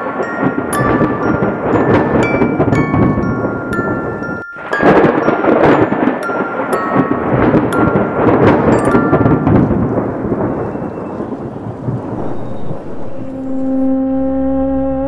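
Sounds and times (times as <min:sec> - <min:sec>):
short chime notes: 0:00.0 - 0:09.9
thunder rumble: 0:00.0 - 0:15.0
held music drone: 0:12.0 - 0:15.0.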